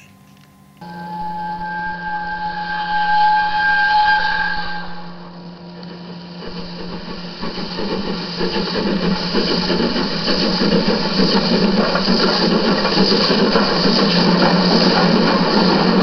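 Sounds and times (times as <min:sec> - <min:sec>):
wheels running on rails: 0:05.3 - 0:16.0.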